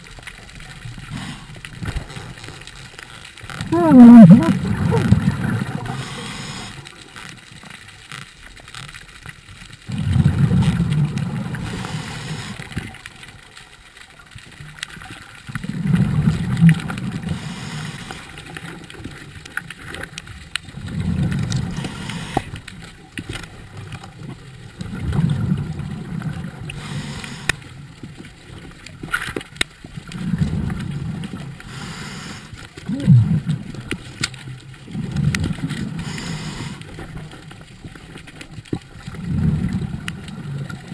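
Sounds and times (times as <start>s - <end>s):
underwater exhaled bubbles: 0.0s - 7.6s, 9.7s - 13.7s, 14.4s - 40.9s.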